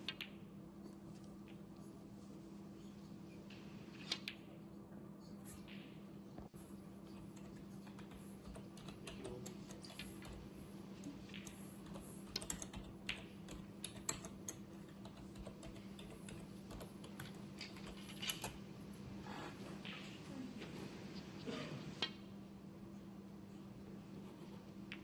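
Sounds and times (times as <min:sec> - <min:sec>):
low steady hum: 0:00.0 - 0:25.0
keyboard typing clicks: 0:11.0 - 0:18.6.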